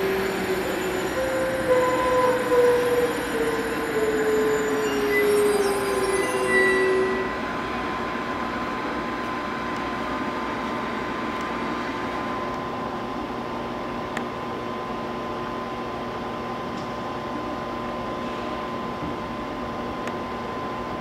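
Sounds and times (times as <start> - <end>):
electric trains humming: 0.0 - 16.5.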